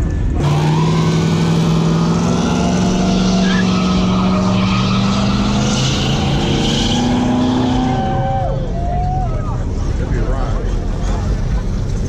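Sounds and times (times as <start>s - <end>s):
car engine revving high: 0.3s - 8.7s.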